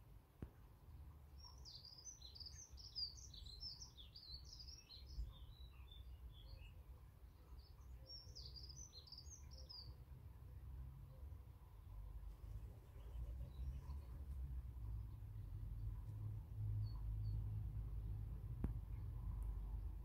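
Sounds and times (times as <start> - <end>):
low background rumble: 10.0 - 20.0
faint tap: 18.6 - 18.9.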